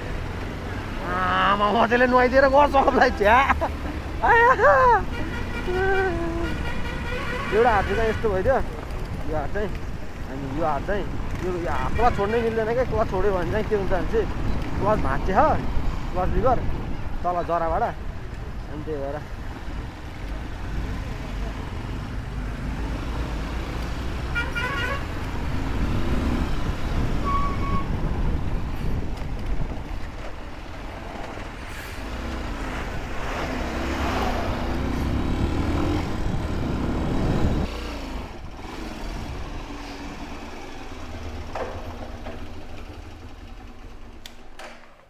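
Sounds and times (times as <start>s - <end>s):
motorcycle engine and road rumble: 0.0s - 45.0s
vehicle horns honking: 5.0s - 8.5s, 24.3s - 25.2s, 27.2s - 28.0s.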